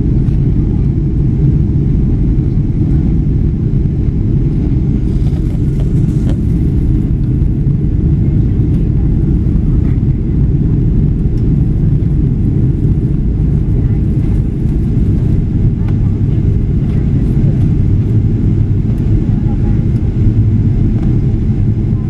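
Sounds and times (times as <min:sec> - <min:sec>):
jet engines droning in cabin: 0:00.0 - 0:22.0.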